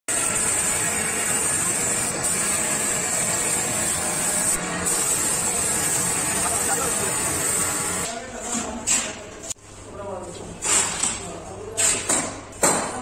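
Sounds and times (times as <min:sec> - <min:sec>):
spray gun hissing: 0:00.1 - 0:08.1.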